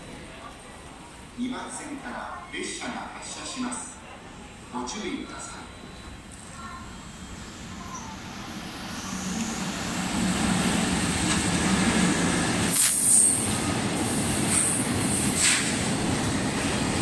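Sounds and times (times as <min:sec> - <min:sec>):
train wheels rumbling on rails: 0:07.5 - 0:17.0.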